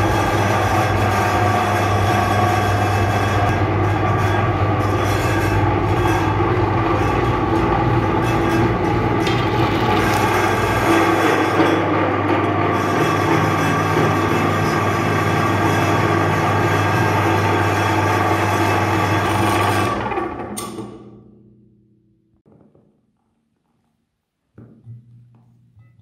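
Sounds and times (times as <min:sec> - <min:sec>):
auger grinding with rough rasping: 0:00.0 - 0:20.4
meat grinder motor humming: 0:00.0 - 0:20.6.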